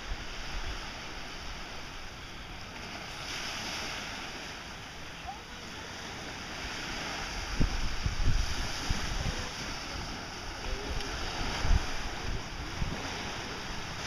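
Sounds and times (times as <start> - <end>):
small waves on sandy beach: 0.0 - 14.0.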